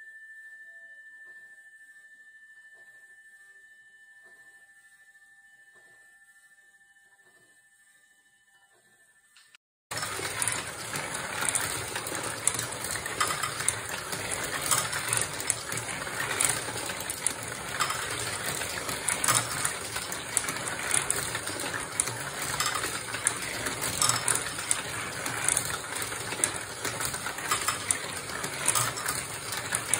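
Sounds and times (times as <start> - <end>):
marbles rolling and clicking: 9.9 - 29.9.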